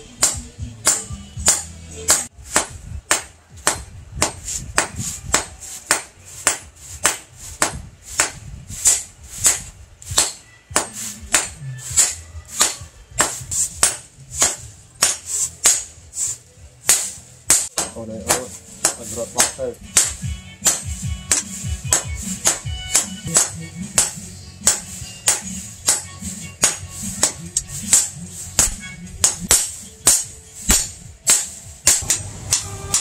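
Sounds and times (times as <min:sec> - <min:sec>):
hammer striking metal on anvil: 0:00.1 - 0:15.9, 0:16.9 - 0:33.0.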